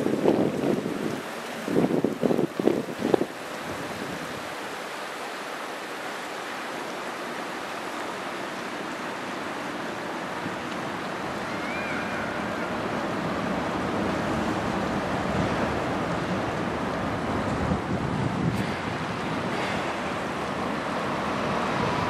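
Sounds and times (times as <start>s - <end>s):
wind rumbling on microphone: 0.0s - 4.8s, 9.8s - 22.0s
waves rushing: 0.0s - 22.0s.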